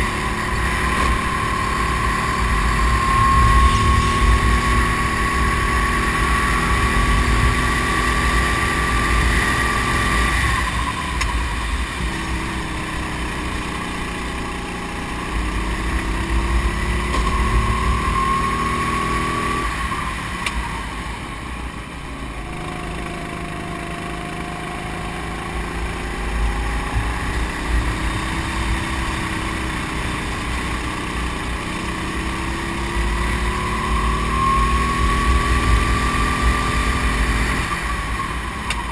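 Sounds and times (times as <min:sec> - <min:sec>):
racing kart engine: 0:00.0 - 0:38.9.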